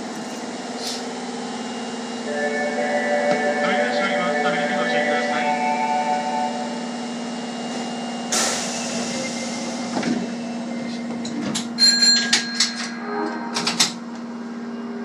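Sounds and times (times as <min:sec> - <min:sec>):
train electrical hum: 0:00.0 - 0:15.0
short high electronic tone: 0:12.5 - 0:15.0.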